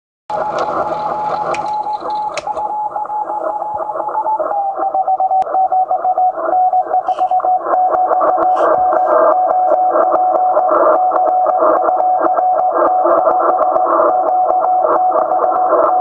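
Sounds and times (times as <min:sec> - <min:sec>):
morse code tone: 0:00.3 - 0:10.0
radio band hiss: 0:06.4 - 0:09.4.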